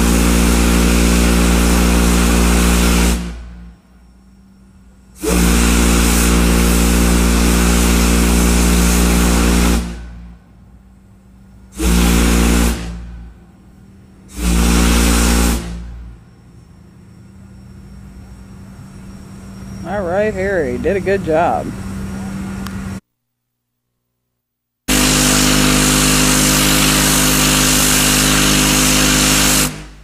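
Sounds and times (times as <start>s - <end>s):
steam whistle blasts: 0.0s - 4.3s, 5.1s - 10.5s, 11.7s - 13.4s, 14.2s - 20.0s, 24.9s - 30.0s
hiss of steam: 5.2s - 10.2s, 11.7s - 13.1s, 14.3s - 15.9s, 24.9s - 30.0s.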